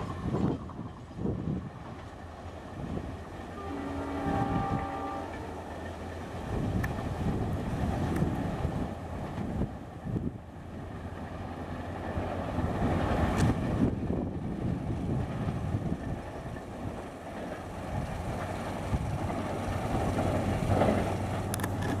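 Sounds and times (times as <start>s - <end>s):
wind on microphone: 0.0s - 2.1s, 3.8s - 5.4s, 6.3s - 10.9s, 12.5s - 17.0s, 17.7s - 22.0s
train coaches rumbling: 0.0s - 22.0s.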